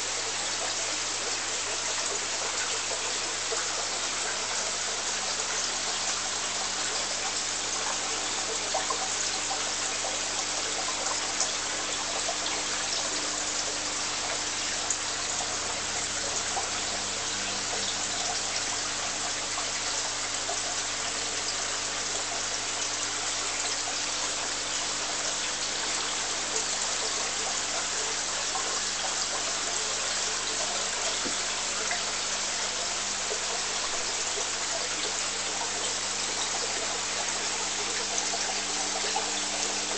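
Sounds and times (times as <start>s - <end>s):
aquarium water trickling: 0.0s - 39.9s.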